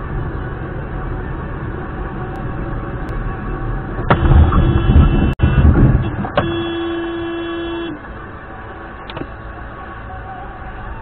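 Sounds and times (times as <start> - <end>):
road noise: 0.0 - 11.0
car horn blast: 4.1 - 8.0.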